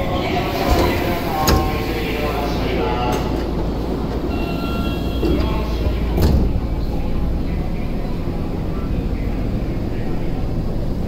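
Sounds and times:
train doors sliding shut: 0:00.0 - 0:07.1
train low hum: 0:00.0 - 0:11.0.

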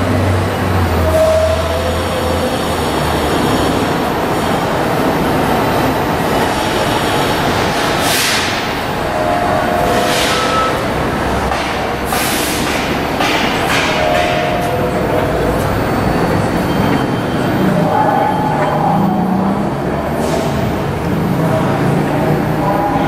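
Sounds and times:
train wheels rumbling on rail: 0:00.0 - 0:23.0
wheel squeal: 0:15.6 - 0:19.8.

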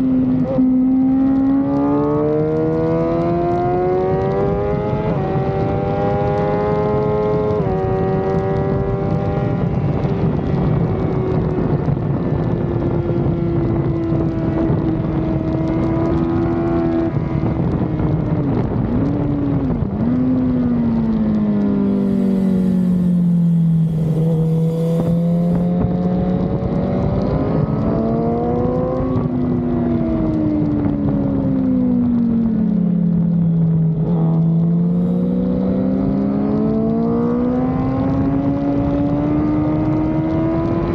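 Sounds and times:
motorcycle engine revving: 0:00.0 - 0:11.3, 0:19.0 - 0:31.1, 0:33.2 - 0:40.9
wind rush: 0:01.6 - 0:40.9.

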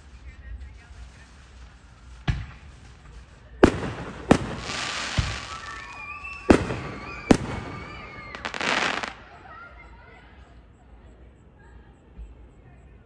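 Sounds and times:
fireworks bangs: 0:00.0 - 0:10.7
fireworks crackling: 0:00.0 - 0:12.7.

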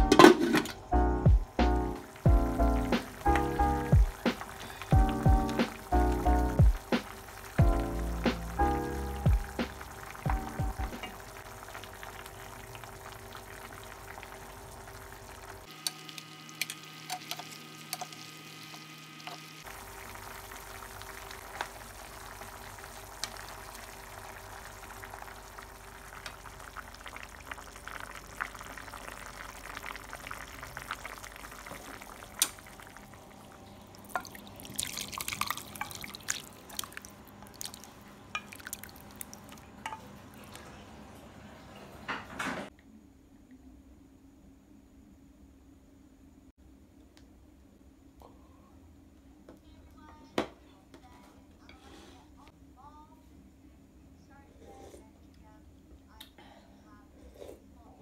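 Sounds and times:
stew simmering hiss: 0:00.1 - 0:42.0
stew poured into glass bowl: 0:33.9 - 0:40.6.

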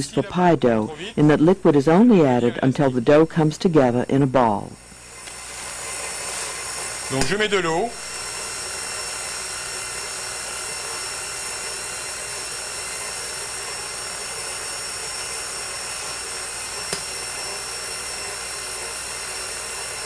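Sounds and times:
stand mixer motor whining: 0:04.8 - 0:20.0.

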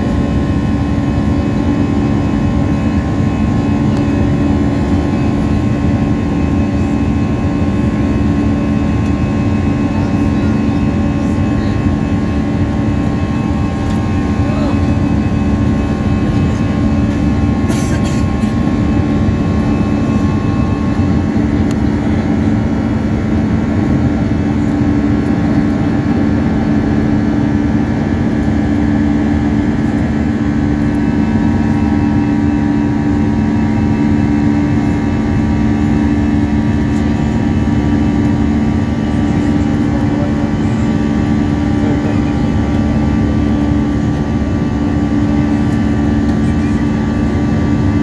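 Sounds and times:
jet engines droning in cabin: 0:00.0 - 0:48.0.

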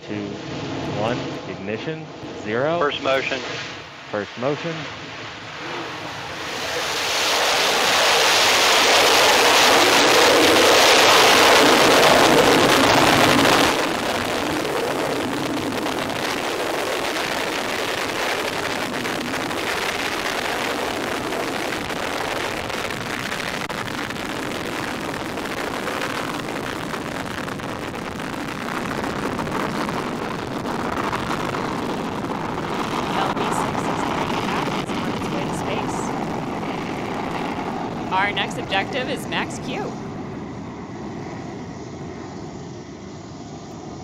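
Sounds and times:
rocket engines roaring: 0:00.0 - 0:44.0.

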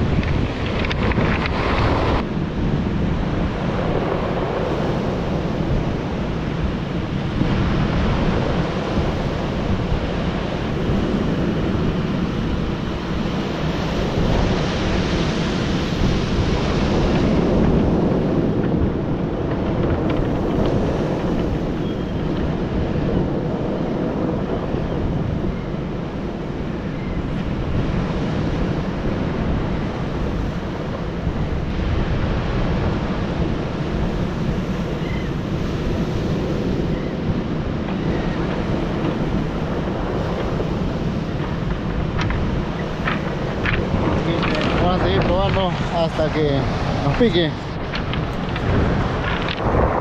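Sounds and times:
wind on microphone: 0:00.0 - 0:50.0
surf breaking on cobbles: 0:39.1 - 0:50.0.

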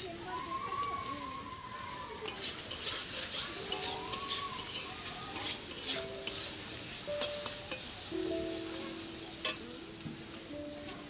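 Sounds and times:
vegetables sizzling: 0:00.0 - 0:11.0
metal spatula scraping wok: 0:02.2 - 0:08.4, 0:09.4 - 0:09.6.

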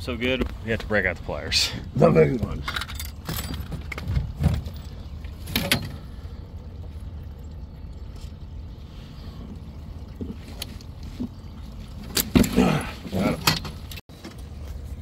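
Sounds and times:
low rumble aboard boat: 0:00.0 - 0:15.0.

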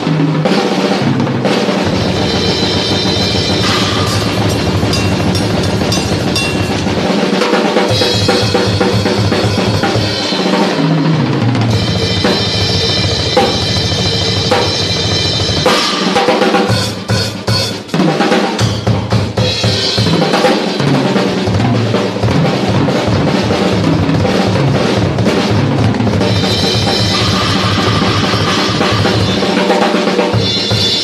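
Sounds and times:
drum kit solo: 0:00.0 - 0:31.0
rapid bass drum strokes: 0:00.0 - 0:31.0
cymbals ringing: 0:02.4 - 0:09.9.

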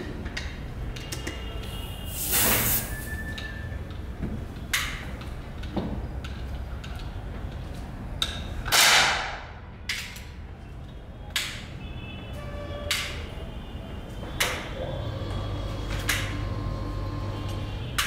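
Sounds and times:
loud hissing burst: 0:02.1 - 0:03.1.

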